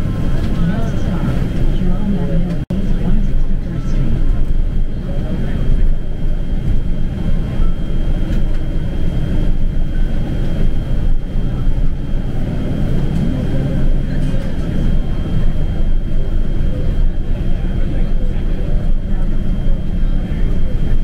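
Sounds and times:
bus engine and road rumble: 0.0s - 21.0s.

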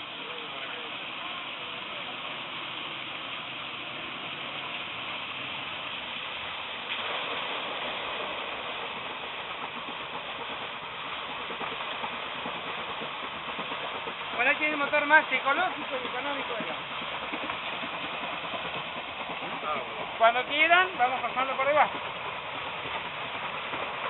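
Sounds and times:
water pouring onto water wheel: 0.0s - 24.0s.

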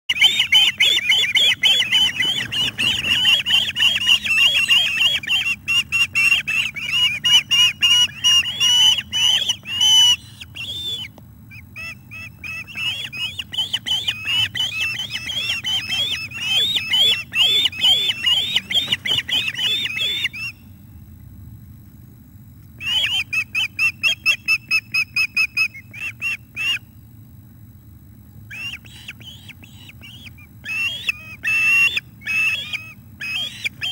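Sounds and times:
ospreys chirping: 0.1s - 20.7s.

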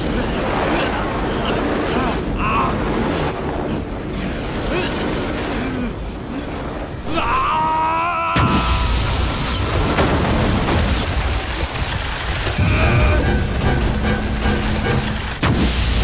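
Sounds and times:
explosion with low rumble: 8.4s - 16.0s.

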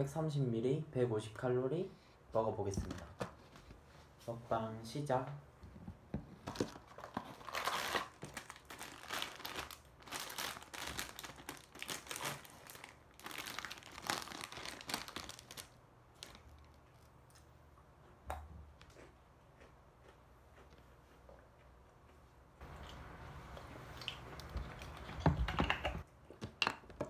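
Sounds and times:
packaging crinkling and tearing: 6.4s - 17.1s.

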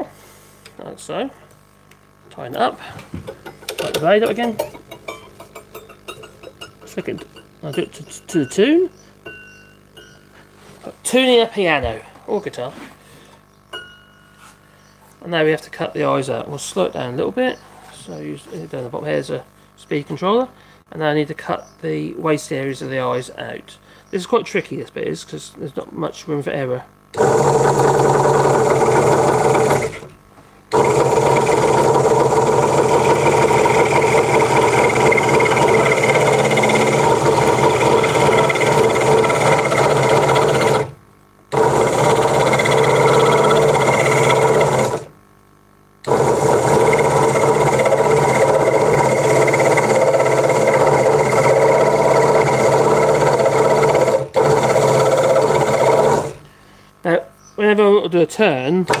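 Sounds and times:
scroll saw cutting wood: 27.2s - 30.1s, 30.7s - 45.1s, 46.0s - 56.4s.

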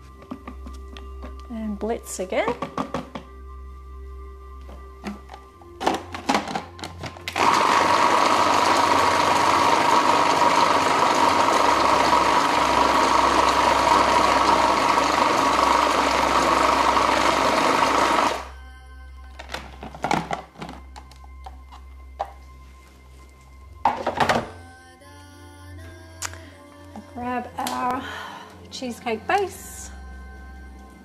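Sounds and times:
food processor motor whining: 5.8s - 18.5s.

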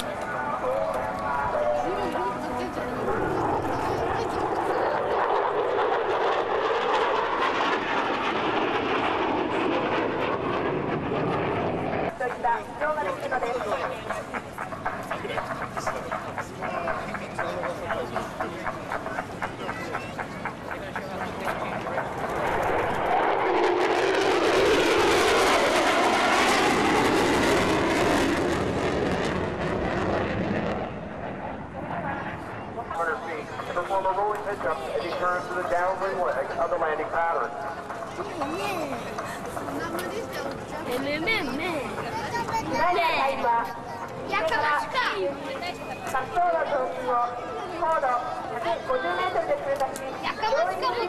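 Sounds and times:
jet flying overhead: 0.0s - 51.0s.

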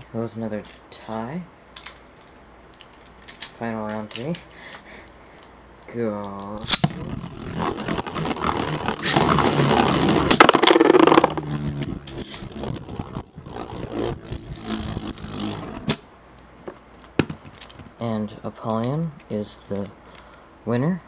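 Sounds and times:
spinning tops grinding together: 6.7s - 16.0s.

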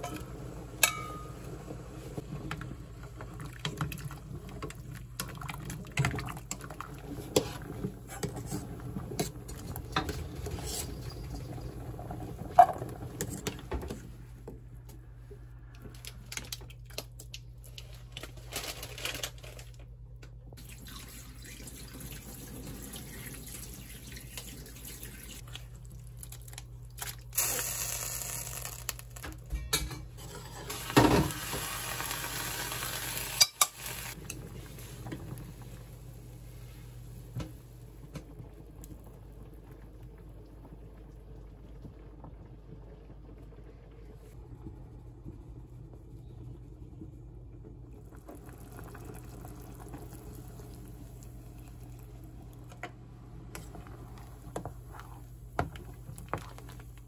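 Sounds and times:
metal strainer and bowl clinking: 0.8s - 1.4s
water running in sink: 20.6s - 26.2s
wooden spoon stirring in pot: 53.5s - 57.0s.

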